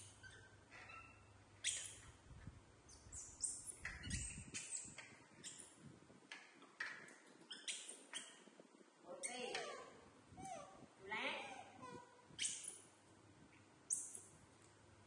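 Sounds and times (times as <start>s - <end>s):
monkeys squeaking and chirping: 0.0s - 2.0s, 2.9s - 5.8s, 7.5s - 8.4s, 9.2s - 10.8s, 11.4s - 12.8s.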